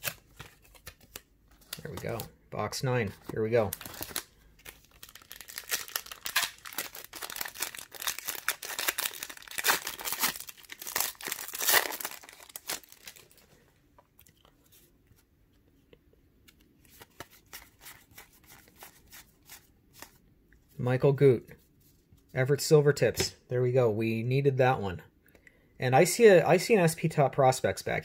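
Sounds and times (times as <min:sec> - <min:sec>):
foil pack crinkling and tearing: 0:03.6 - 0:13.4.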